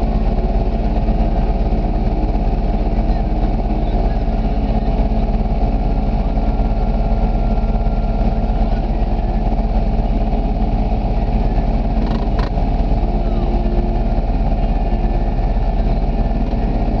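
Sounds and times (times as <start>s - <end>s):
engine idling: 0.0s - 17.0s.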